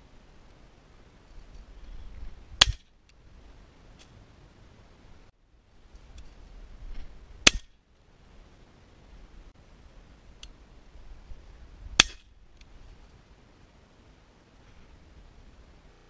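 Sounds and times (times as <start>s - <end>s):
shotgun shots: 7.4s - 7.7s.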